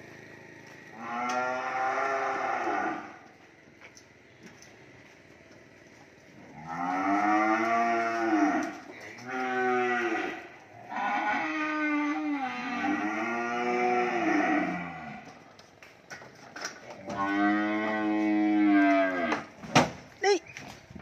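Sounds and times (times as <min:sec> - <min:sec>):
cattle mooing: 0:00.9 - 0:03.3, 0:06.5 - 0:15.4, 0:17.0 - 0:19.5.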